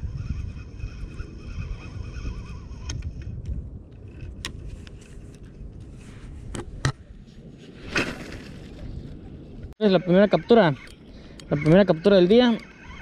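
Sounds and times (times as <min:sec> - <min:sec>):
wind rumble on microphone: 0:00.0 - 0:09.8
fishing reel and rod clicking: 0:10.7 - 0:13.0.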